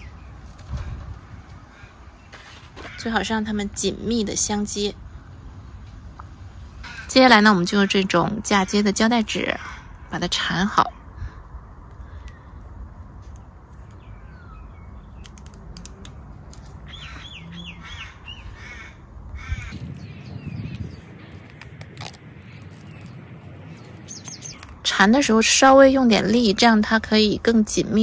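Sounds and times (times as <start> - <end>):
bird calling: 16.5 - 25.6.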